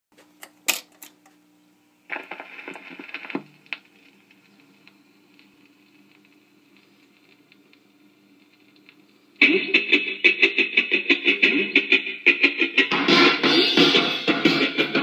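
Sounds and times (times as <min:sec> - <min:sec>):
record changer clicks: 0:00.2 - 0:01.4
record changer mechanical clatter: 0:00.2 - 0:01.4, 0:02.1 - 0:15.0.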